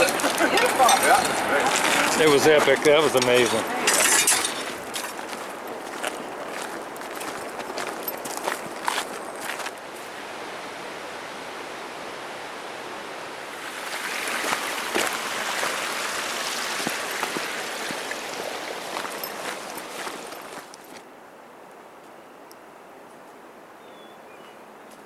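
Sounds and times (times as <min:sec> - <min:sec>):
footsteps: 0:00.0 - 0:10.1, 0:13.8 - 0:21.1
rushing creek water: 0:00.0 - 0:21.2.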